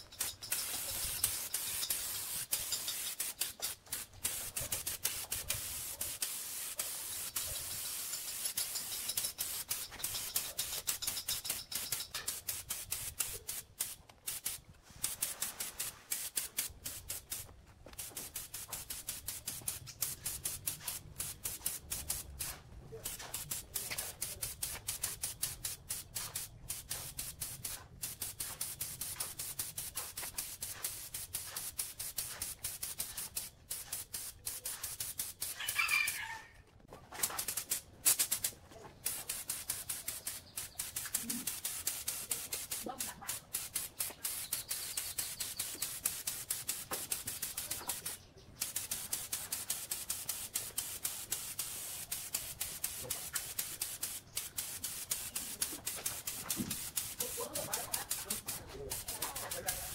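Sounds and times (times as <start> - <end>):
spray gun hissing: 0.0 - 36.2, 37.2 - 59.9
rooster crowing: 35.6 - 36.6.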